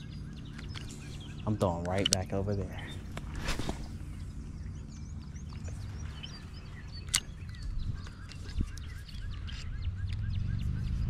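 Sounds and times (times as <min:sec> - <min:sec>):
small birds chirping: 0:00.0 - 0:11.0
steady low rumble: 0:00.0 - 0:11.0
sharp clicks: 0:00.3 - 0:03.3, 0:06.2 - 0:10.3.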